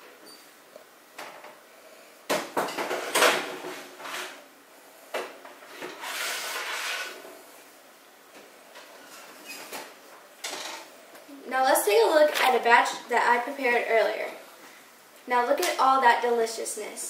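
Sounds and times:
tray scraping in oven: 5.6 - 7.3.

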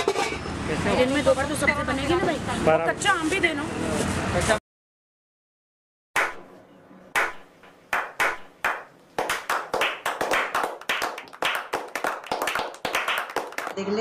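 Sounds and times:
people clapping: 7.2 - 14.0.

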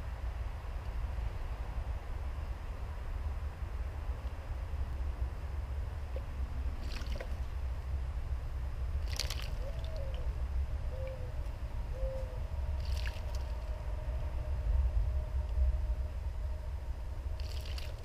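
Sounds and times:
steady low rumble: 0.0 - 18.0
bird splashing in water: 6.8 - 7.4, 9.0 - 9.9, 12.8 - 13.6, 17.4 - 18.0.

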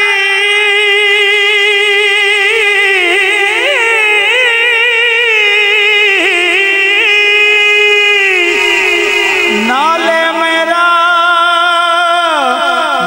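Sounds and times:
person singing long note: 0.0 - 13.0.

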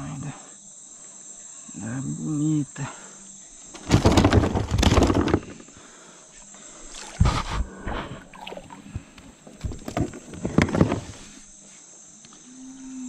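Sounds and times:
faint high insect buzz: 0.0 - 4.3, 5.3 - 13.0
loud thumps: 3.8 - 5.6.

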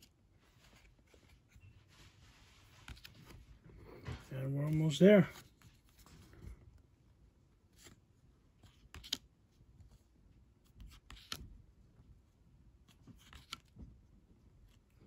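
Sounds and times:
trading cards rustling and clicking: 0.0 - 1.6, 2.2 - 6.6, 8.6 - 10.0, 10.6 - 11.5, 12.9 - 13.8.

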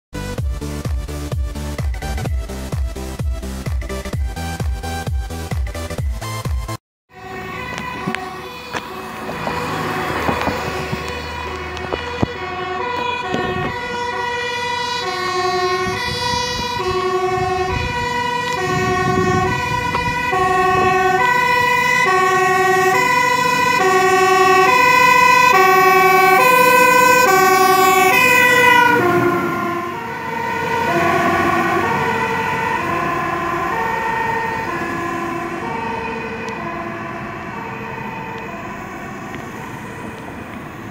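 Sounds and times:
two-tone siren: 0.7 - 6.5, 7.1 - 40.9.

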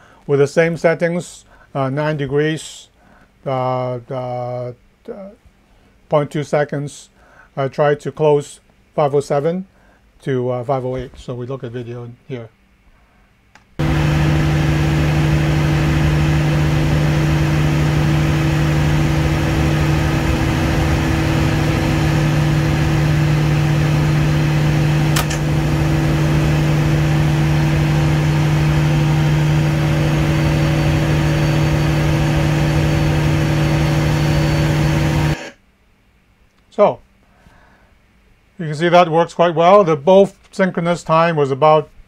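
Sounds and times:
generators running loudly: 13.8 - 35.4
circuit breaker click: 20.9 - 28.6.

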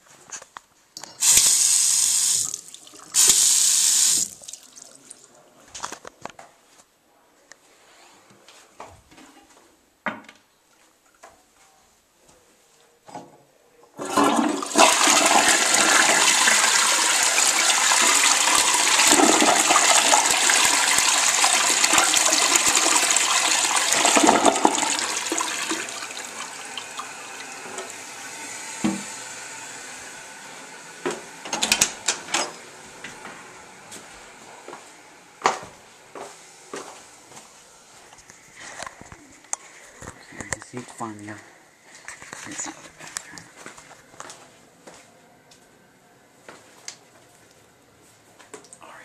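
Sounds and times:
toilet flushing: 1.1 - 5.4, 14.0 - 33.9
tank refilling hiss: 1.2 - 2.6, 3.2 - 4.4.

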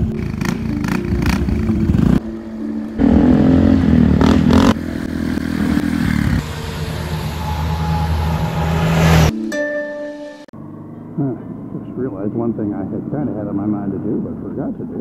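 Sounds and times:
small motorcycle engine revving: 3.0 - 9.3.

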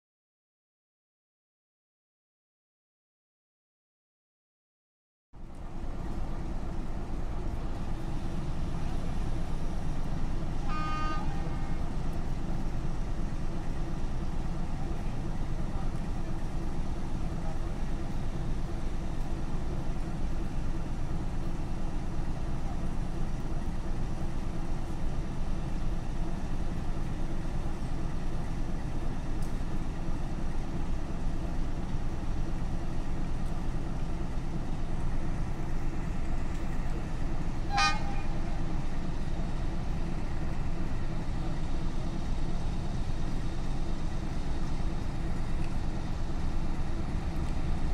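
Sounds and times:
diesel locomotive engine rumble: 5.4 - 47.9
high horn toot: 10.6 - 11.8, 37.6 - 38.4.

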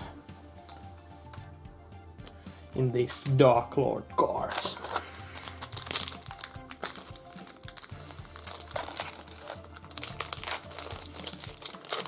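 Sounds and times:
background music: 0.0 - 12.0
foil packs crinkling: 4.6 - 12.0.

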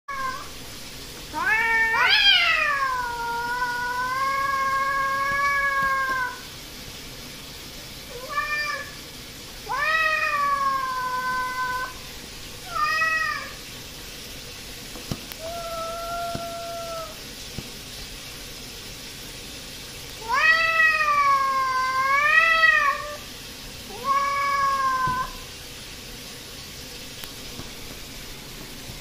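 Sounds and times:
cats yowling aggressively: 1.3 - 6.5, 8.1 - 9.0, 9.6 - 12.0, 12.6 - 13.6, 15.4 - 17.2, 20.2 - 23.3, 23.9 - 25.5.

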